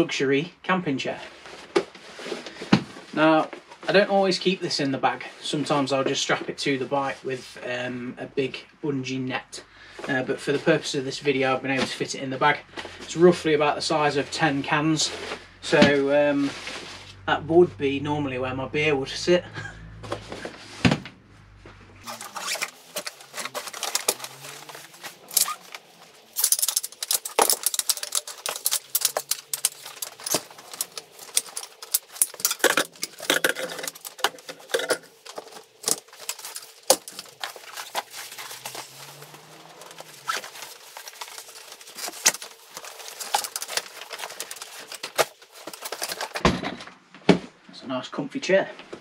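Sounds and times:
nylon fabric rustling: 22.0s - 46.4s
metal poles clacking and clicking: 22.1s - 46.4s.

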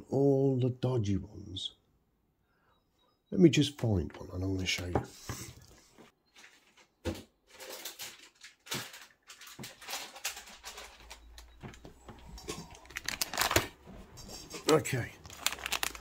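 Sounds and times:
rummaging through parts: 6.3s - 16.0s.

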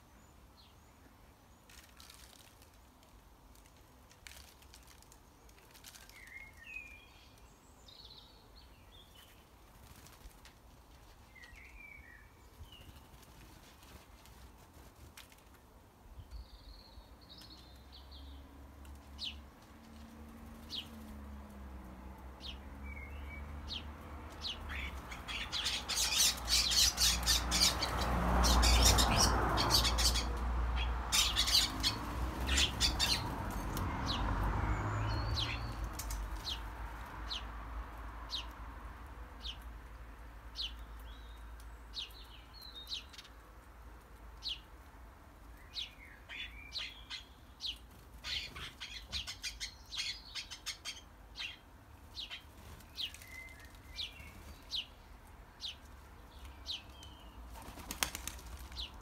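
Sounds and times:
sparrows chirping: 0.0s - 2.5s, 4.4s - 10.2s, 10.9s - 14.2s, 16.1s - 59.0s
bird wingbeats: 57.5s - 59.0s.

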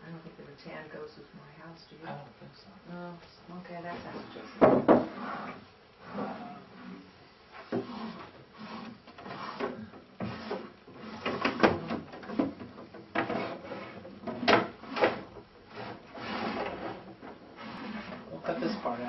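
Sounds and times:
wooden doors clacking and bumping: 9.2s - 15.6s.

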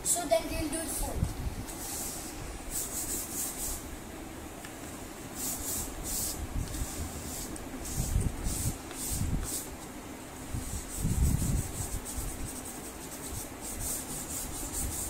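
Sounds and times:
pastel rubbing on paper: 1.8s - 3.8s, 10.6s - 15.0s.

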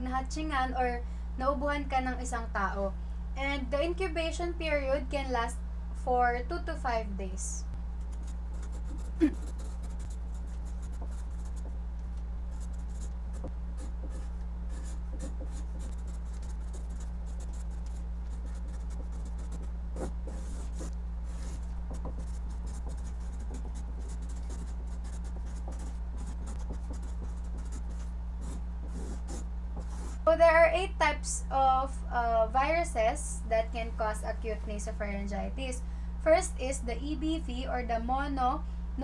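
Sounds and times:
steady low hum: 0.0s - 39.0s
marker scratching on paper: 8.0s - 11.7s, 12.5s - 30.3s.

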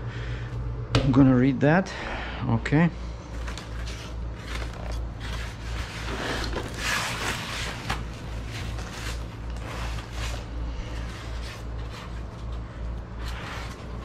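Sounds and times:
steady low hum: 0.0s - 14.0s
foam packing scraping and rustling: 3.3s - 14.0s.

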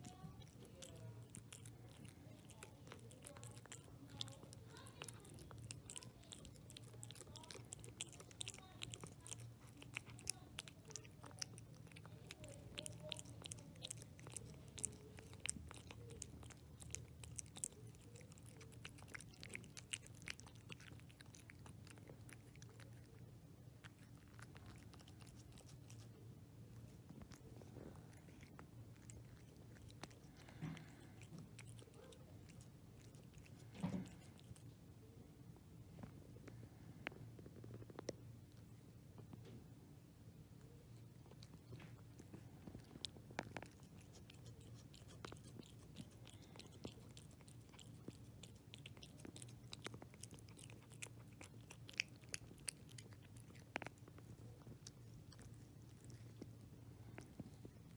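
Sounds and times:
cat chewing wet food: 0.0s - 35.2s, 40.4s - 57.9s.

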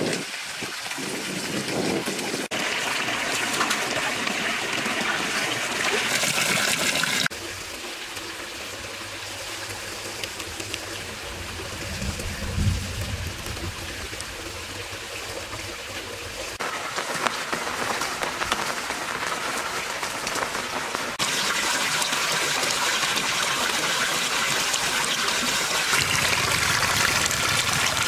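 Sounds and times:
water trickling and splashing: 0.0s - 28.0s
low bump: 10.8s - 16.5s.

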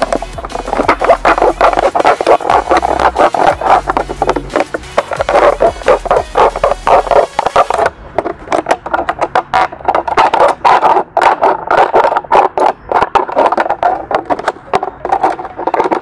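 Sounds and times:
knife sawing plastic bottle: 0.0s - 7.9s.

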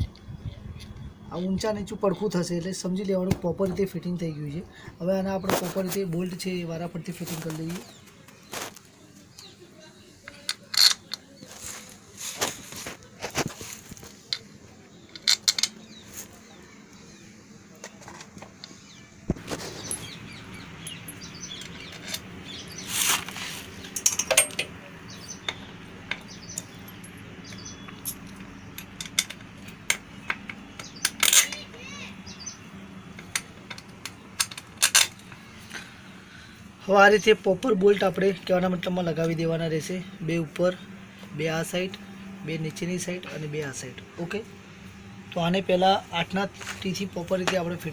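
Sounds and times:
steady low hum: 0.0s - 47.9s
metallic clicks of bolts: 10.3s - 11.2s.

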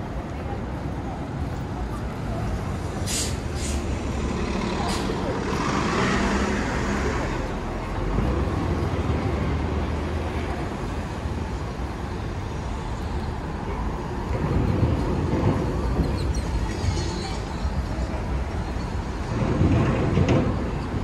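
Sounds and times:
road traffic passing: 0.0s - 21.0s.

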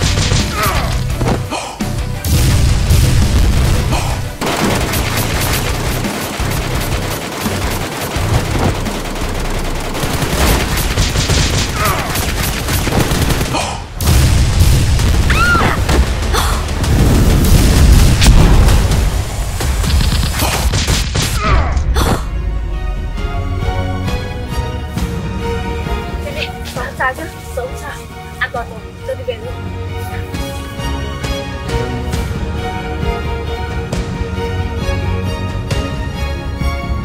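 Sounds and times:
action music: 0.0s - 37.0s
automatic gunfire bursts: 4.4s - 13.6s.

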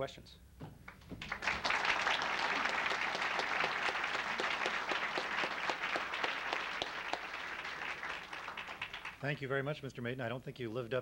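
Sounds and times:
audience applauding: 0.9s - 9.3s.

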